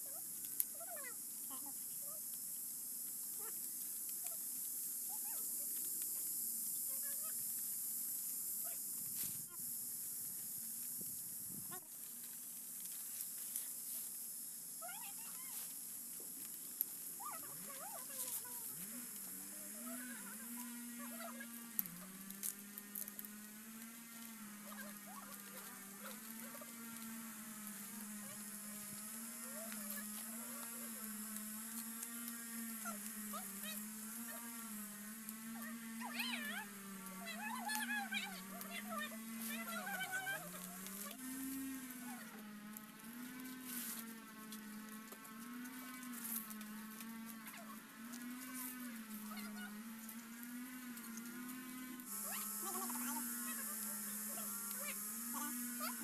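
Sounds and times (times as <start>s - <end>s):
steady high hiss: 0.0s - 44.8s, 48.5s - 56.0s
leaves rustling and crackling: 0.0s - 56.0s
steady low hum: 0.0s - 56.0s
leaves snapping: 15.4s - 56.0s
high hiss: 52.0s - 56.0s.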